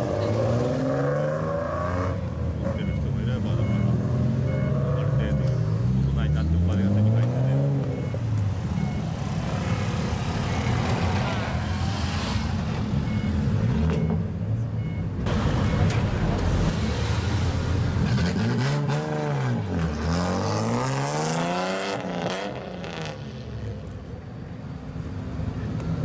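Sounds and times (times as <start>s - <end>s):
engine revving: 0.0s - 8.2s, 16.6s - 23.3s
car engines with loud exhausts: 0.0s - 26.0s.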